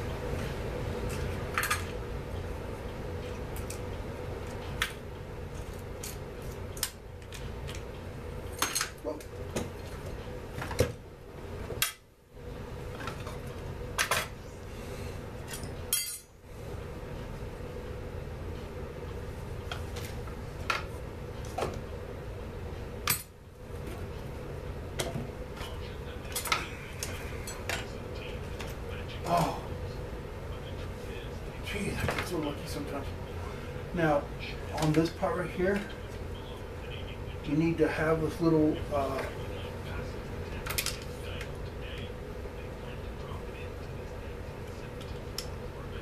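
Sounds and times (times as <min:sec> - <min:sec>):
steady low hum: 0:00.0 - 0:46.0
metal tools clinking: 0:15.5 - 0:16.3.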